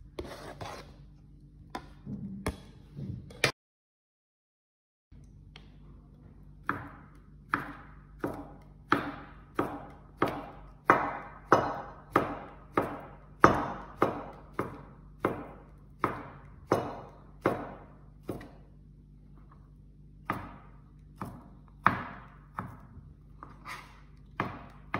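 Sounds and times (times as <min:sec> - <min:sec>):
knife chopping on plastic board: 0:01.7 - 0:03.5, 0:06.6 - 0:18.8, 0:20.2 - 0:24.9.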